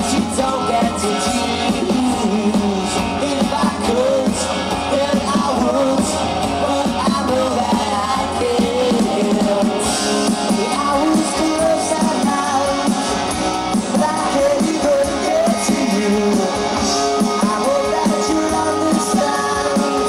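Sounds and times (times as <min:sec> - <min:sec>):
drums: 0:00.0 - 0:20.0
electric guitars: 0:00.0 - 0:20.0
man singing into a microphone: 0:00.0 - 0:20.0.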